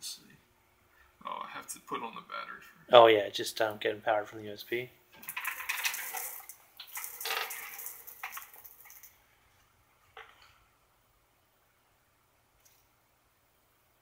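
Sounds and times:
rustling handling noise: 5.2s - 9.6s.

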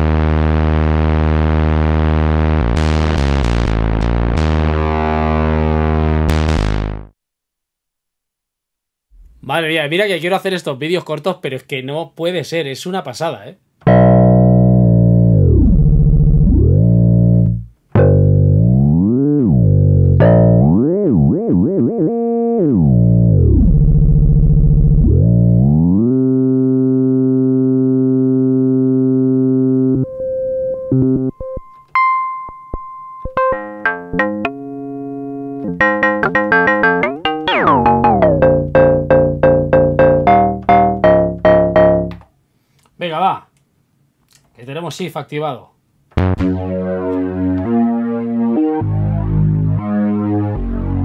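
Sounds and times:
synthesizer notes: 13.9s - 23.8s, 33.3s - 42.2s, 46.2s - 51.0s.

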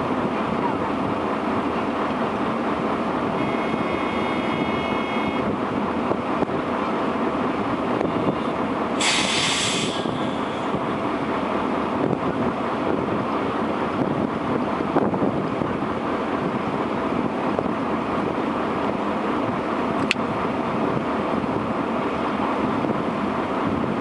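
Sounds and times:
loud sharp hiss: 9.0s - 10.6s.

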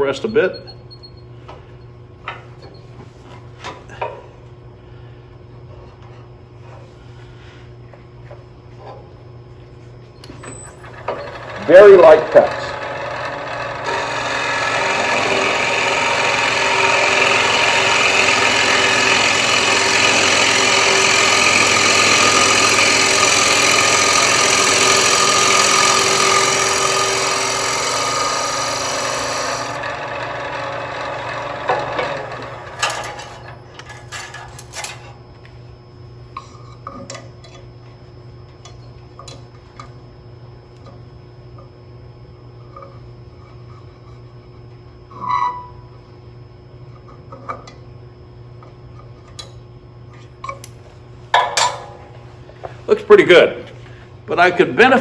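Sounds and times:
scraper cutting spinning wood: 10.8s - 33.5s.

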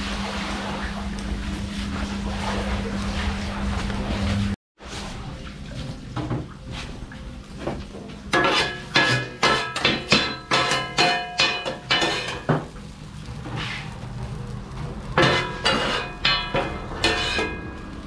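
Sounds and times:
metal blades clanging on griddle: 8.3s - 12.7s, 15.1s - 18.0s.

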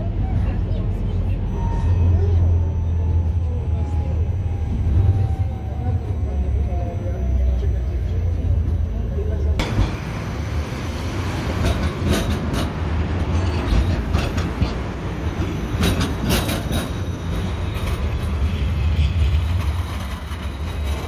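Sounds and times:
tram wheels rumbling on rails: 0.0s - 21.0s
wheels clacking over rail joints: 9.6s - 21.0s.

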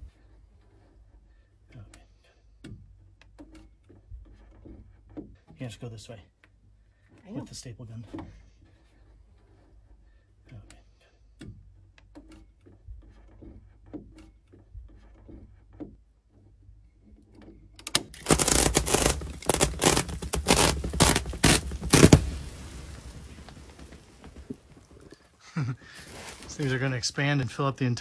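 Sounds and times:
handling taps and knocks: 11.4s - 16.6s
plastic wrapping tearing: 17.9s - 25.0s.

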